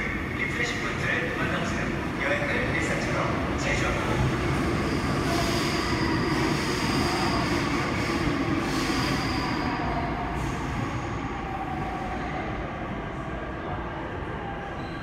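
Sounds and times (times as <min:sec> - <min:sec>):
subway train rolling and slowing: 0:00.0 - 0:15.0
high squeal: 0:08.7 - 0:10.2, 0:14.7 - 0:15.0.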